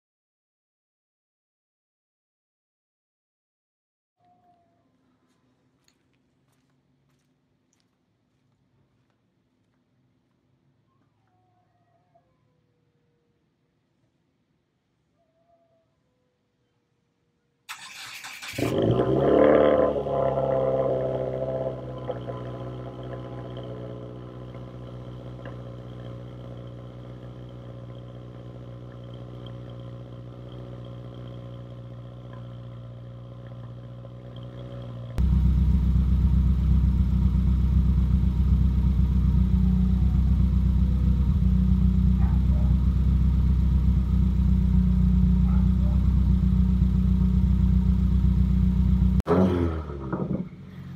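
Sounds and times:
car engine starting and idling: 17.7s - 50.9s.

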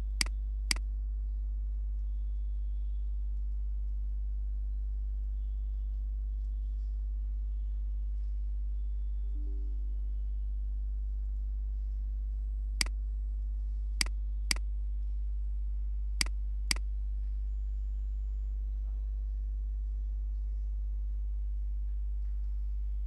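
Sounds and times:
low electrical hum: 0.0s - 23.0s.

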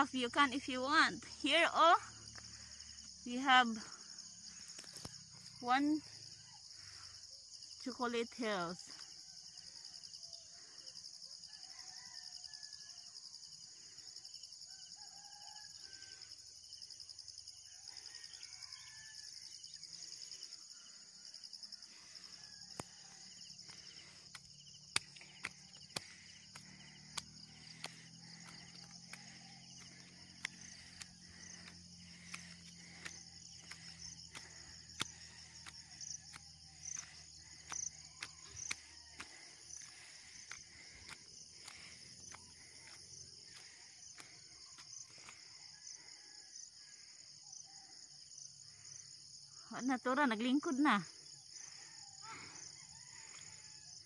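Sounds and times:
insects chorus: 0.0s - 54.0s
distant rooster crowing: 11.4s - 13.2s, 14.6s - 16.5s, 17.5s - 19.8s, 52.5s - 54.0s.

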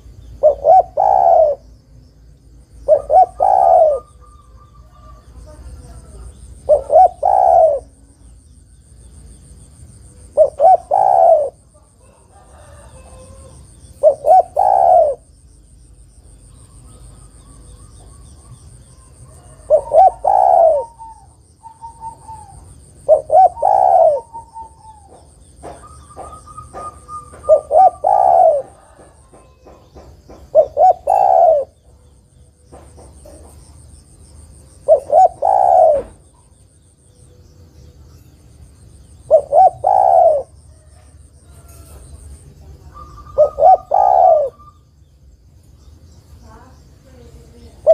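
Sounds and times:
dove cooing: 0.0s - 1.7s, 2.7s - 8.3s, 10.1s - 15.4s, 16.6s - 33.6s, 34.5s - 36.6s, 39.1s - 44.8s, 47.6s - 47.9s.

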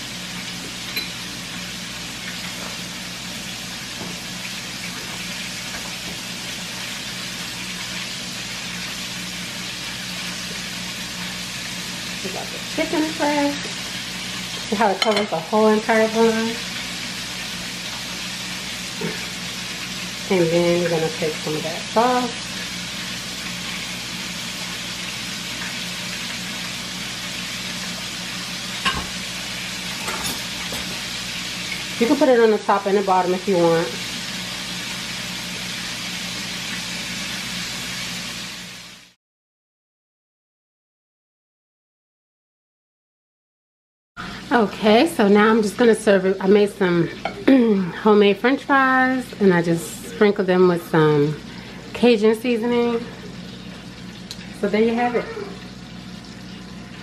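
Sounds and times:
chicken sizzling in hot oil: 0.0s - 39.2s, 44.2s - 57.0s
low electrical hum: 44.2s - 57.0s.

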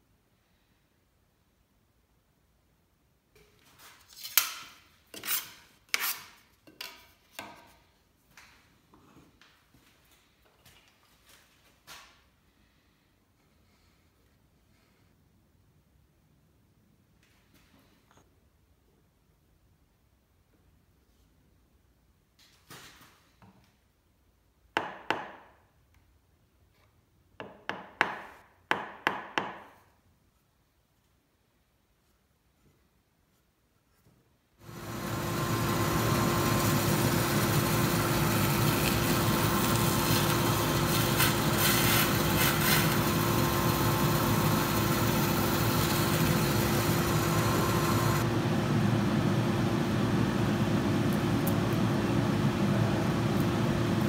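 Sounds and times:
hand tool scraping wood: 3.8s - 7.6s, 39.8s - 43.6s
hammer tapping wood: 27.4s - 29.7s.

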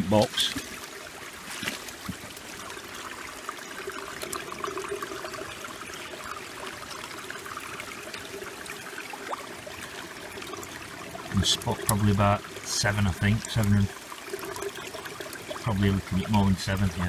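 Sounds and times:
water flowing through sluice: 0.0s - 17.0s.

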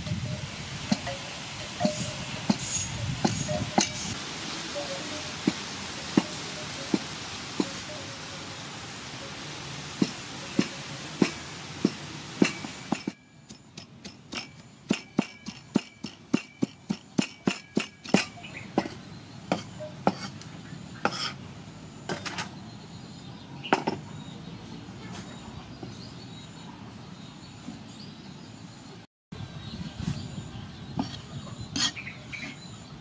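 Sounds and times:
knife chopping on wooden block: 13.8s - 20.4s, 21.1s - 21.4s.

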